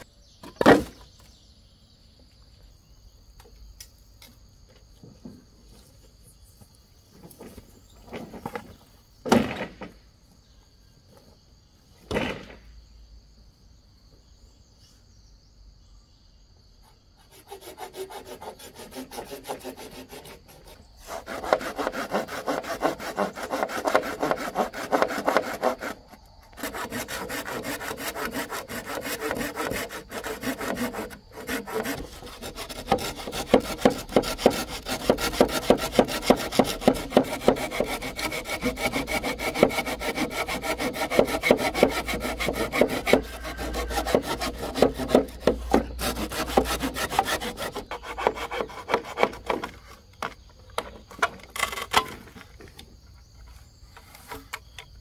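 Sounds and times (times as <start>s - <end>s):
rasping strokes on wood: 17.2s - 49.8s.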